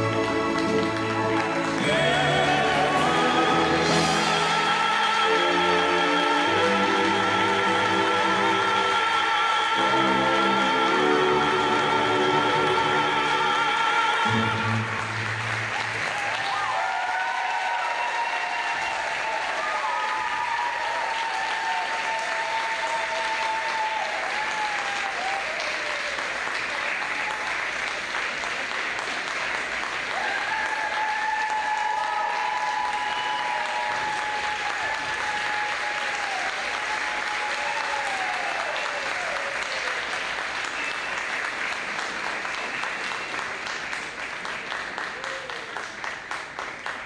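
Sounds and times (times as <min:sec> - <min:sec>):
audience applauding: 0:00.0 - 0:47.0.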